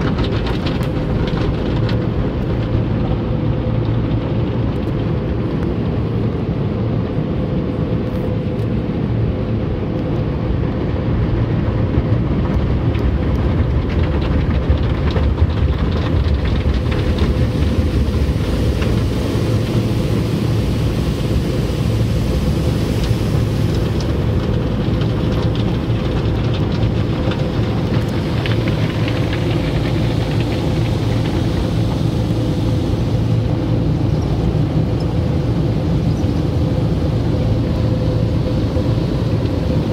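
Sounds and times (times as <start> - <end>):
low rumble with hum: 0.0 - 39.9
water spraying: 16.0 - 39.9.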